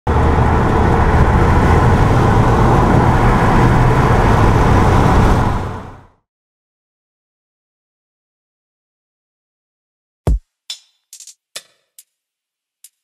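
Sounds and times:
car engine and road noise: 0.1 - 6.2.

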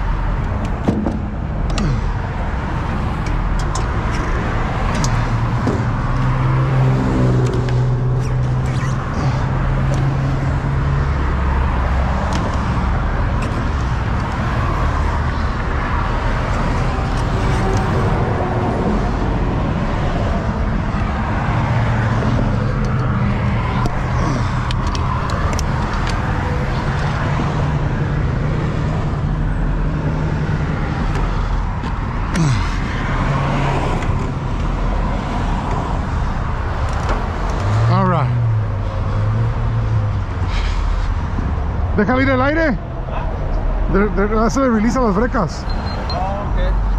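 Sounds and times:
road traffic: 0.0 - 46.9
sharp clicks and knocks: 0.4 - 2.0, 3.1 - 6.4.

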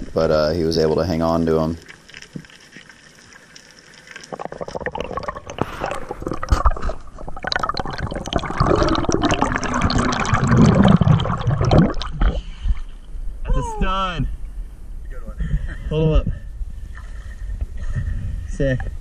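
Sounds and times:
underwater bubbling: 0.8 - 13.1
small underwater clicks: 1.8 - 6.9.

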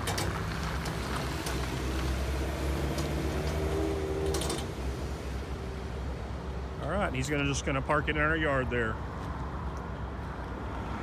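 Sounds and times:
truck engine rumbling: 0.0 - 11.0.

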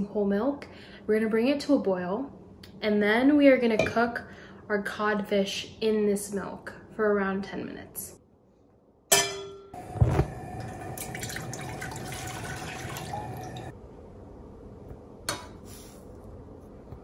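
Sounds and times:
milk pouring into a saucepan: 10.5 - 13.7.

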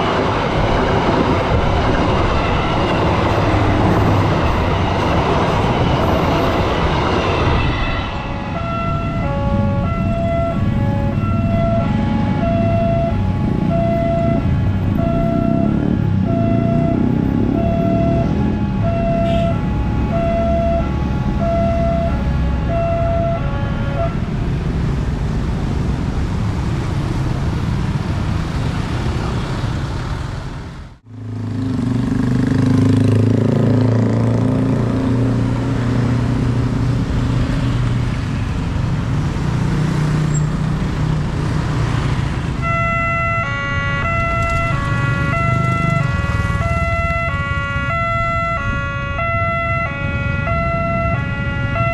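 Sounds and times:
traffic running past: 0.0 - 51.9
crossing alarm stepping between pitches: 5.8 - 24.2, 42.6 - 51.9
motorcycle engines: 8.2 - 51.9
level crossing siren beeping: 8.4 - 24.1, 42.6 - 51.9.

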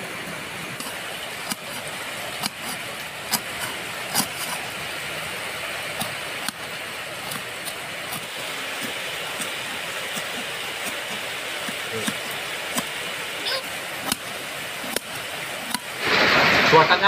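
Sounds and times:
knife tapping on board: 10.1 - 12.9.

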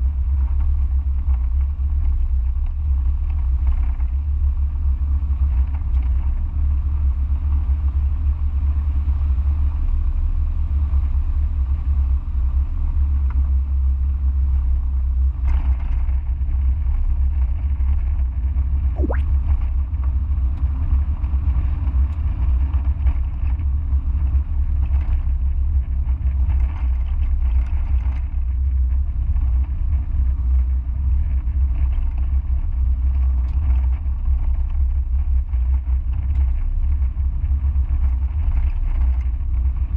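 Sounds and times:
short rising squeak: 19.0 - 19.3.

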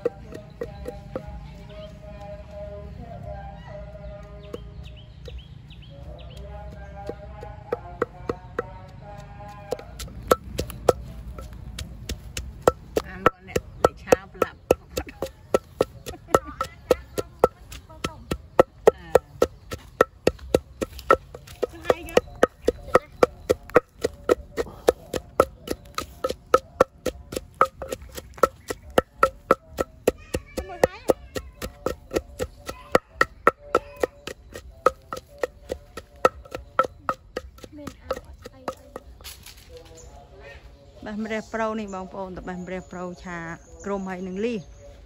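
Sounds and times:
knife chopping on wooden board: 9.7 - 39.1.

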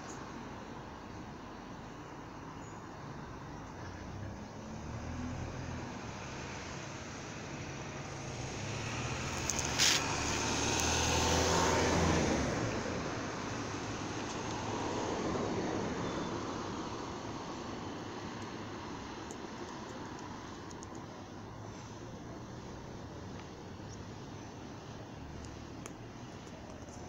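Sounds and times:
vehicle passing by rumbling: 8.1 - 15.9.

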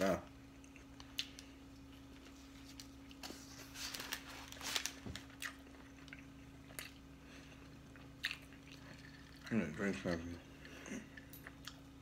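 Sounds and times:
steady low hum: 0.0 - 12.0
person chewing a sandwich: 0.4 - 9.5, 10.4 - 12.0.

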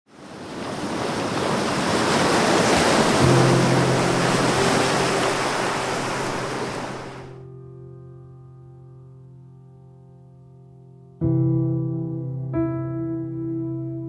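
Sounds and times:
surf-like rushing noise: 0.1 - 7.4.

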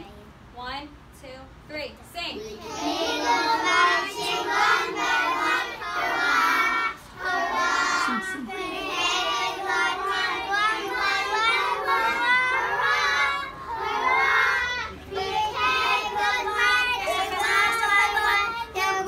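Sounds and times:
young children singing: 2.5 - 19.0.

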